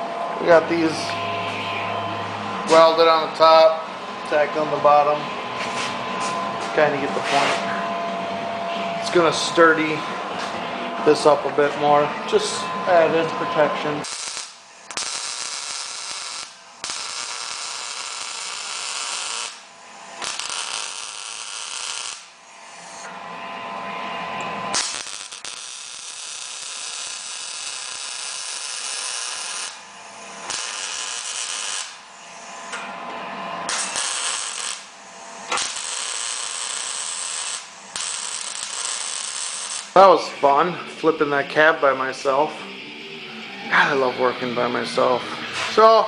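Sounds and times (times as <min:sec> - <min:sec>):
arc welding crackling: 0:09.0 - 0:23.1, 0:24.5 - 0:32.8, 0:33.6 - 0:41.2.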